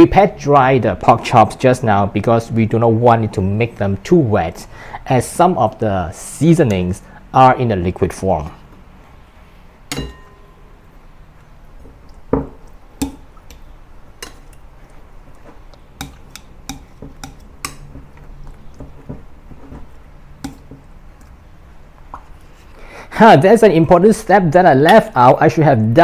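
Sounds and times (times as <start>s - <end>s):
metal tongs clinking on glass bowl: 9.9s - 10.5s
meat squishing in marinade: 11.4s - 21.6s.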